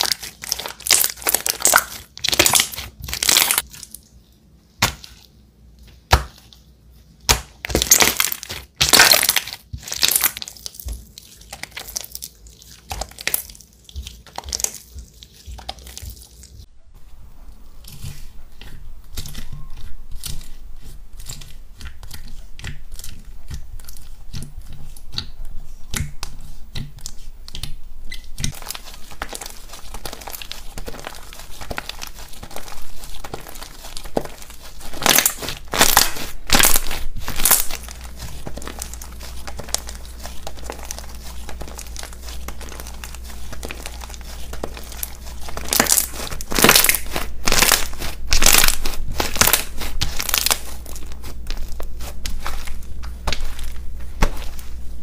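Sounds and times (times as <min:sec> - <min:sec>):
slime crackling and tearing: 0:00.0 - 0:04.0, 0:07.3 - 0:16.4, 0:27.5 - 0:54.8.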